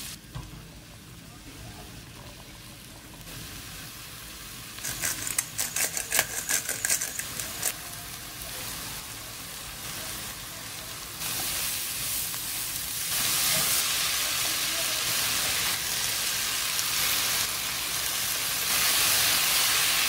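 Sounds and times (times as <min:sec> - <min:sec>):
vegetables sizzling in a pan: 0:00.0 - 0:20.0
spatula scraping a pan: 0:04.8 - 0:07.7.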